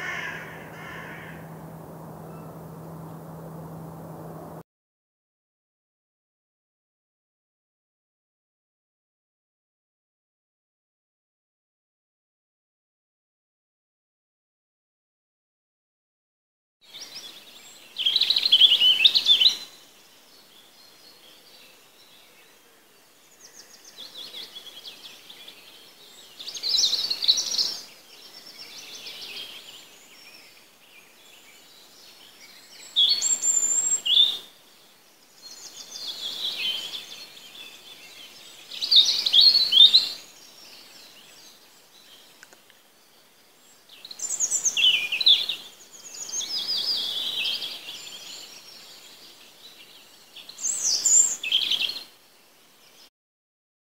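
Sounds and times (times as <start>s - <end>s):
songbird singing: 0.0s - 4.6s, 16.9s - 53.1s.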